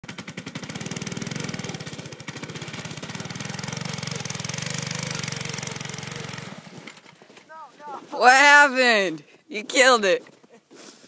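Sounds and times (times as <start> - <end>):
go-kart engine running: 0.0 - 7.5.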